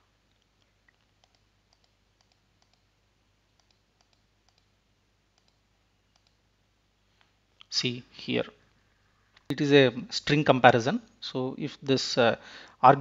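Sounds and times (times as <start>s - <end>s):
low steady hum: 0.0s - 13.0s
computer mouse clicks: 0.3s - 2.9s, 3.5s - 6.4s.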